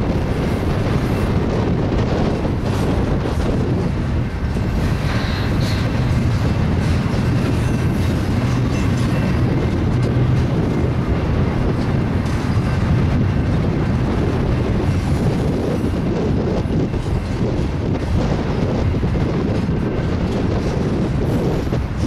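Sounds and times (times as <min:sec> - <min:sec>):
freight train wheels rumbling on rails: 0:00.0 - 0:22.0.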